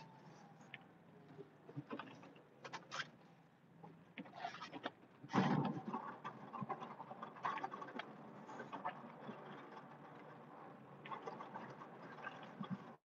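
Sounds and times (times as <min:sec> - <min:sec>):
crackles and clicks: 0:04.2 - 0:13.0.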